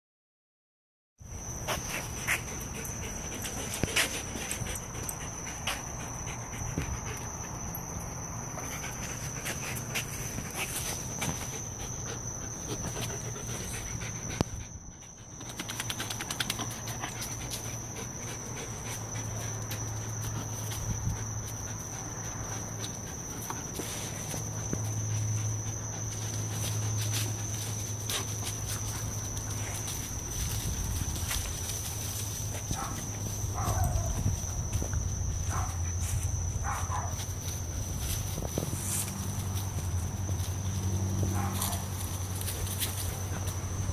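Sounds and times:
paw clicks and scuffs: 0:01.6 - 0:07.4, 0:15.3 - 0:43.9
dogs panting: 0:01.6 - 0:34.5, 0:35.5 - 0:43.9.

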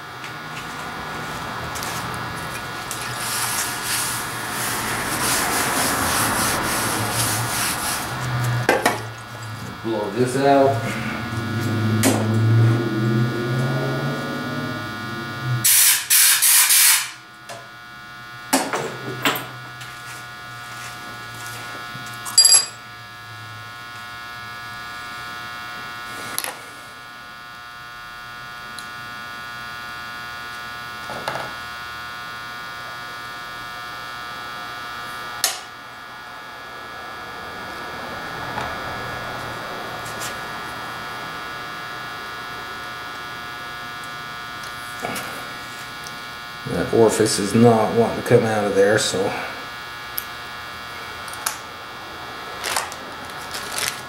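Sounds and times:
steady electrical hum: 0:00.0 - 0:54.0
low drone: 0:00.5 - 0:15.7
compressed air blow gun burst: 0:15.6 - 0:17.2
metal tools clinking: 0:22.3 - 0:22.8.

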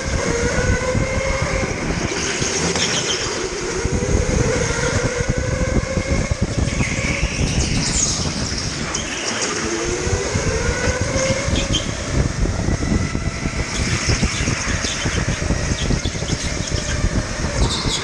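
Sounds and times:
electric motor whine: 0:00.0 - 0:18.0
go-kart rumbling over track: 0:00.0 - 0:18.0.

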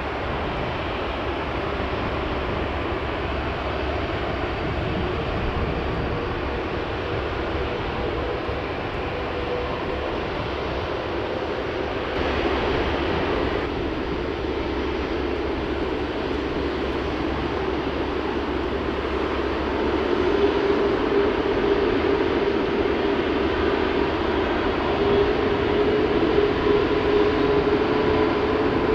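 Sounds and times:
jet engines humming: 0:00.0 - 0:28.9.

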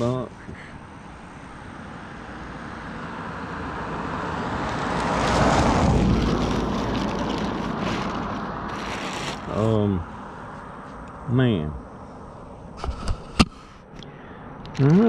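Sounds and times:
vehicle passing by: 0:01.3 - 0:10.8.

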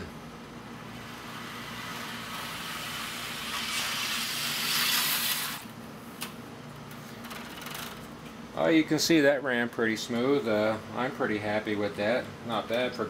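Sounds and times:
model train wheels rolling hiss: 0:00.9 - 0:05.7.

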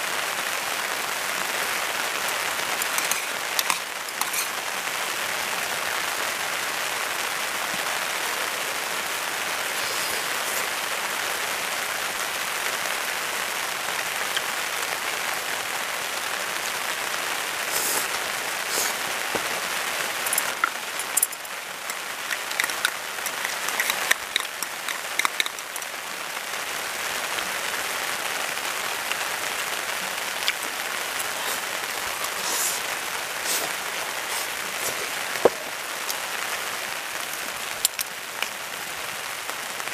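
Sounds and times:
meat sizzling in a frying pan: 0:01.5 - 0:05.9, 0:16.8 - 0:36.5
utensils clicking and tapping: 0:02.8 - 0:04.5, 0:20.3 - 0:25.9.

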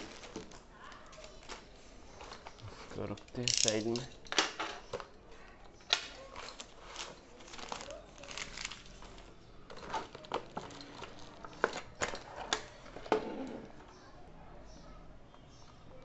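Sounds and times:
plastic bag crinkling: 0:00.0 - 0:04.1, 0:06.1 - 0:12.0.

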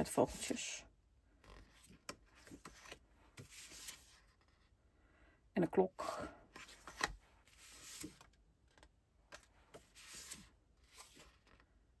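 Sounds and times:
paper sheets rustling: 0:01.8 - 0:04.2, 0:06.6 - 0:08.3, 0:09.3 - 0:11.6.

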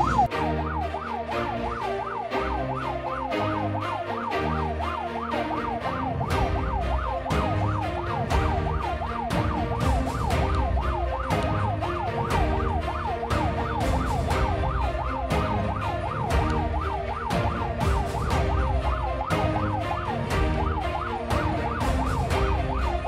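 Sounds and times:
ambulance siren yelping: 0:00.0 - 0:23.0.

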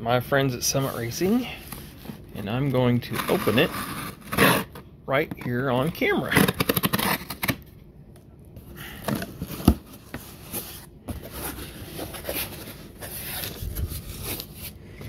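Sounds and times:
packing tape rustling and scraping: 0:00.9 - 0:04.8, 0:05.9 - 0:07.6, 0:08.9 - 0:14.8.

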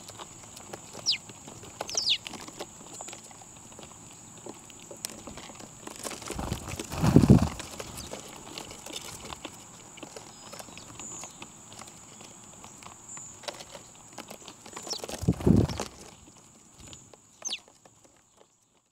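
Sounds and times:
high falling bird chirps: 0:00.9 - 0:01.2, 0:01.9 - 0:02.3, 0:17.4 - 0:17.6
low rustling flurry: 0:06.2 - 0:08.2, 0:15.1 - 0:16.1.

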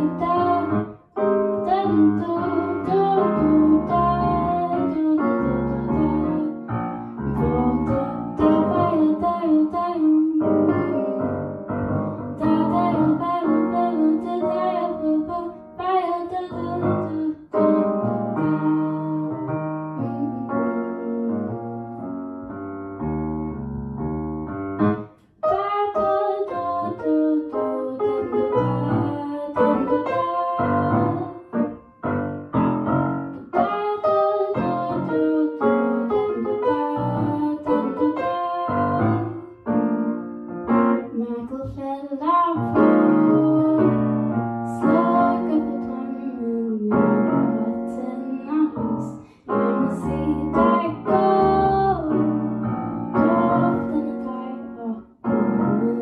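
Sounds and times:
woman singing: 0:00.0 - 0:00.9, 0:01.5 - 0:11.4, 0:12.3 - 0:21.5, 0:25.4 - 0:31.6, 0:33.5 - 0:39.7, 0:41.0 - 0:44.1, 0:44.7 - 0:52.5, 0:53.2 - 0:56.0
grand piano: 0:00.0 - 0:56.0.

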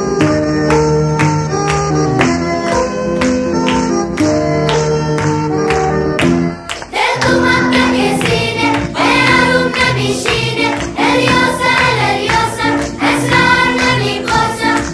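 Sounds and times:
instrumental music: 0:00.0 - 0:14.9
voices singing: 0:06.9 - 0:14.9.

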